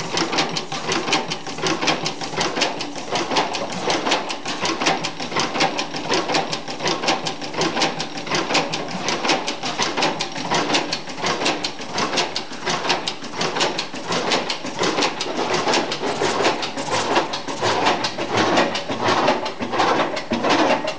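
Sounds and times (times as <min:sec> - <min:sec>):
stationary gas engine clattering: 0:00.0 - 0:20.9.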